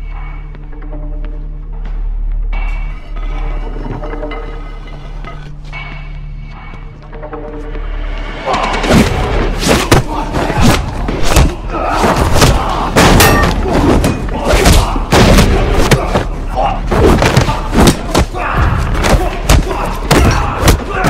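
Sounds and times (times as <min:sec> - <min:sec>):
background music: 0:00.0 - 0:21.0
punches and body hits: 0:08.9 - 0:21.0
shouts or grunts: 0:11.4 - 0:21.0.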